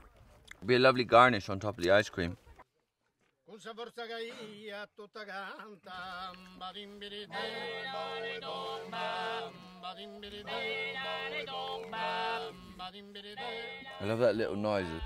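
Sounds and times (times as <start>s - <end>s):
men singing unaccompanied chant: 4.2s - 15.0s.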